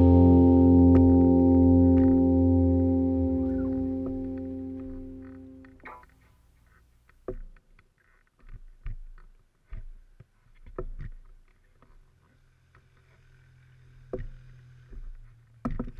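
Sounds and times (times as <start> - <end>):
faint low hum: 0.0 - 6.1.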